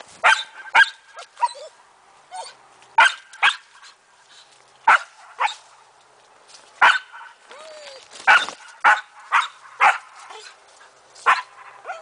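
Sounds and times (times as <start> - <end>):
dog barking: 0.2 - 1.0, 3.0 - 3.6, 4.9 - 5.6, 6.8 - 7.4, 8.3 - 10.5, 11.2 - 12.0.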